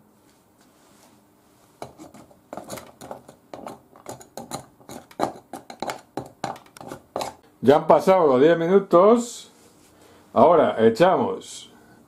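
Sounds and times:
wooden spoon knocking on glass jug: 0:02.6 - 0:07.4.

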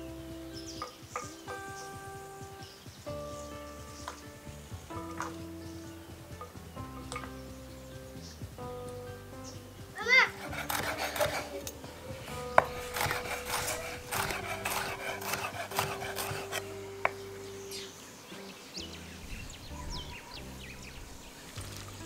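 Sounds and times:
background music: 0:00.0 - 0:22.0
knife chopping on wooden board: 0:10.2 - 0:11.7, 0:12.3 - 0:17.2.

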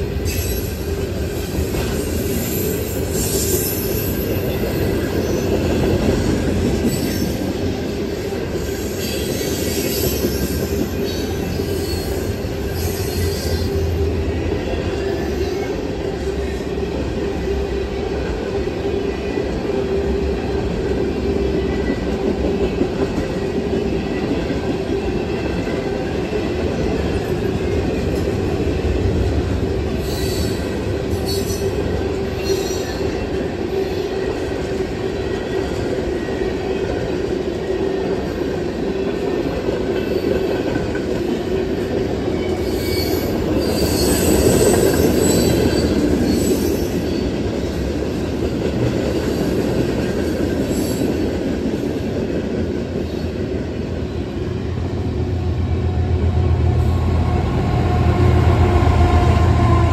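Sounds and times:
freight train wheels rumbling: 0:00.0 - 0:59.9
high-pitched wheel squeal: 0:42.6 - 0:47.2.

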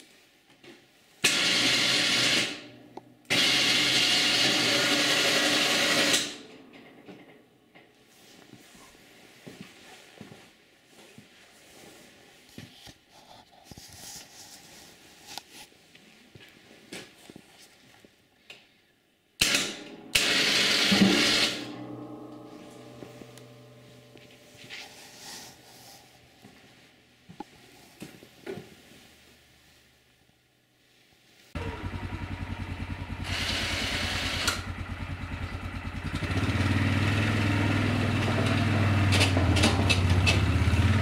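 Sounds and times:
loud ringing metal clank: 0:19.8 - 0:24.7.

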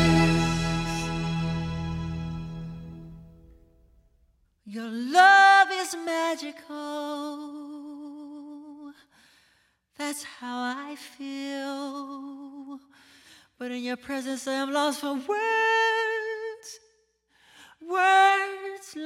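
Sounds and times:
piano accompaniment: 0:00.0 - 0:03.4.

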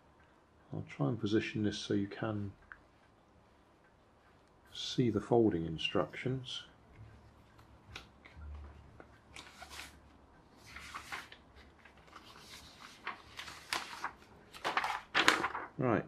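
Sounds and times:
paper rustling: 0:08.0 - 0:10.0, 0:10.6 - 0:15.8.

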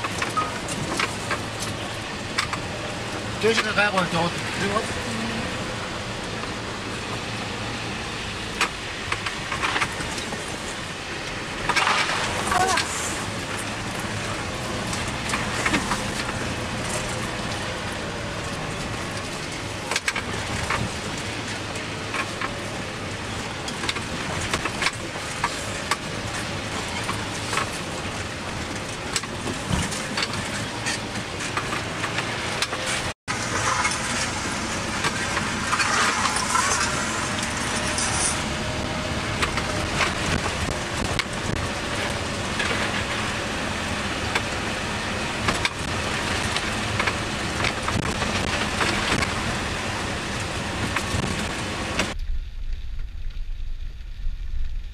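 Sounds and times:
vehicle engine drone: 0:00.0 - 0:54.9
body clicks rattles and knocks: 0:08.5 - 0:10.6, 0:18.5 - 0:21.2, 0:23.6 - 0:38.2, 0:38.8 - 0:43.5, 0:44.2 - 0:49.6, 0:50.4 - 0:52.2.

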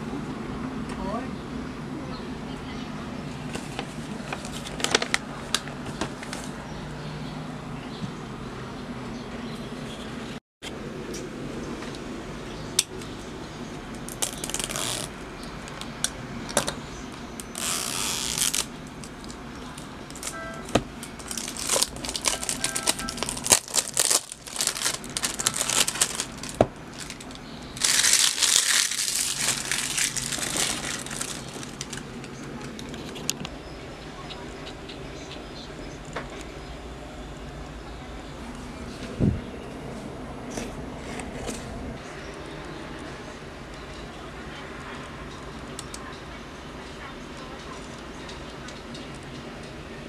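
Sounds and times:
plastic wrap crinkling and tearing: 0:04.2 - 0:05.6, 0:14.0 - 0:15.1, 0:17.4 - 0:33.1.

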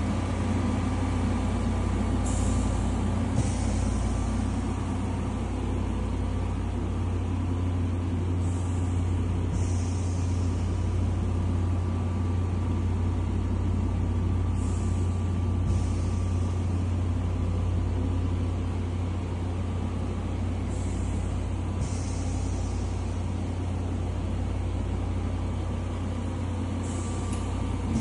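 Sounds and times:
low hum under rushing air: 0:00.0 - 0:28.0
short air hisses: 0:02.2 - 0:07.0, 0:08.4 - 0:11.0, 0:14.6 - 0:16.8, 0:20.6 - 0:24.0, 0:26.8 - 0:28.0.

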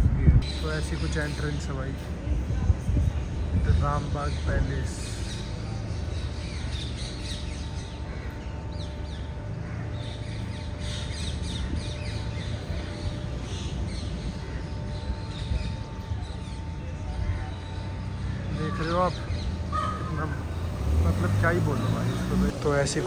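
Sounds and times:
birds chirping: 0:00.0 - 0:23.0
crows cawing: 0:08.0 - 0:12.2, 0:17.1 - 0:20.6.

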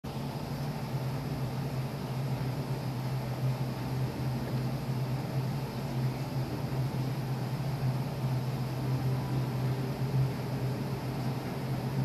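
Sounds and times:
steady low hum: 0:00.0 - 0:12.0
constant hiss: 0:00.1 - 0:12.0.

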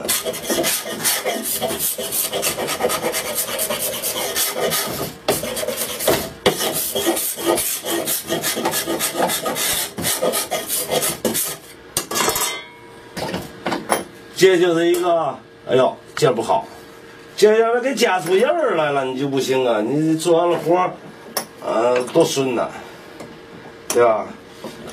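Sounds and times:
file rasping on wood: 0:00.0 - 0:11.8.

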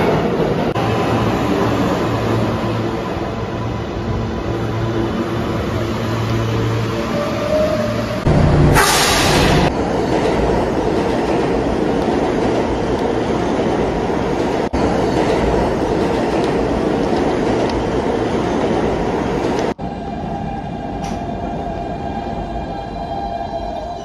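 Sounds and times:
subway train rumbling on rails: 0:00.0 - 0:24.0
air hiss: 0:08.8 - 0:09.7.

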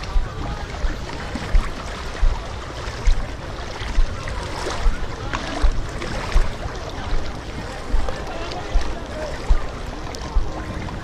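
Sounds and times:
dull low thuds of strides: 0:00.0 - 0:11.0
sea water splashing: 0:00.0 - 0:11.0.

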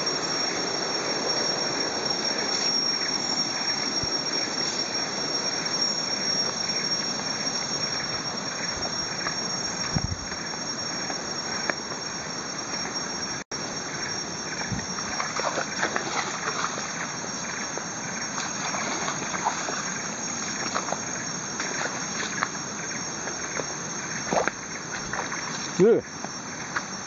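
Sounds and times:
insects droning: 0:00.0 - 0:27.0
footsteps on muddy trail: 0:14.7 - 0:22.6.

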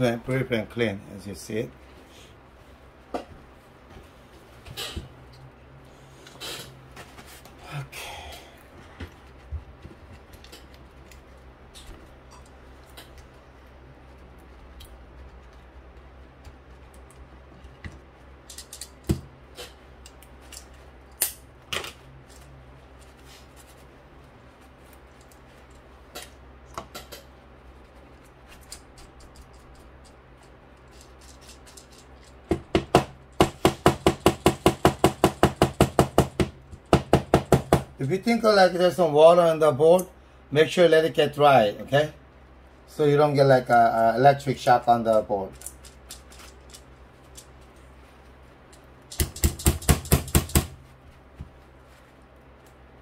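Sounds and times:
objects being handled: 0:08.6 - 0:32.6, 0:45.5 - 0:52.9.

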